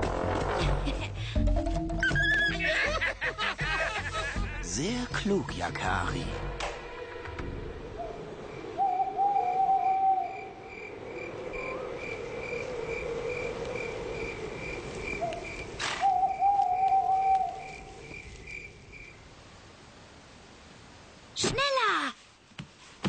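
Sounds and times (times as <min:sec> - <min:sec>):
sharp crack: 0:06.6 - 0:06.9
crickets chirping: 0:06.8 - 0:20.4
long wavering hoot: 0:07.9 - 0:10.7, 0:16.0 - 0:17.8.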